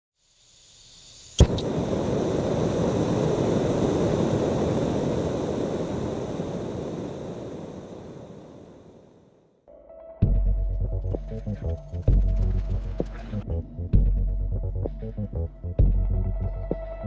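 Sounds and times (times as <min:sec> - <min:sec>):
swelling noise riser: 0:01.4 - 0:09.3, 0:10.9 - 0:16.5
long rumbling noise: 0:01.4 - 0:09.4, 0:10.7 - 0:16.6.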